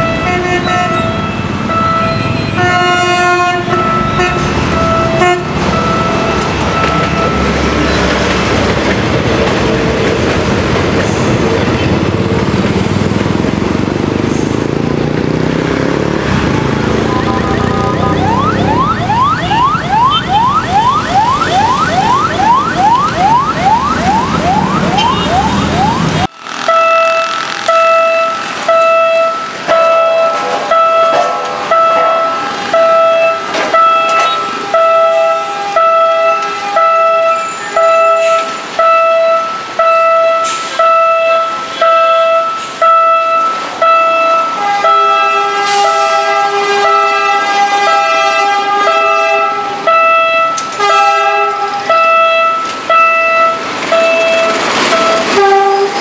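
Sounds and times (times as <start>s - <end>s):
passing train rumble: 0.0s - 56.0s
level crossing bells ringing: 3.7s - 7.8s, 16.5s - 25.3s, 51.9s - 55.4s
rising electronic whoop: 16.8s - 21.6s.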